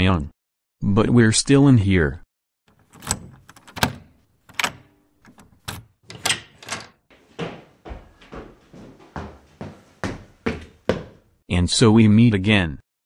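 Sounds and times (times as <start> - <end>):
hard-soled footsteps on hard floor: 6.1 - 11.4.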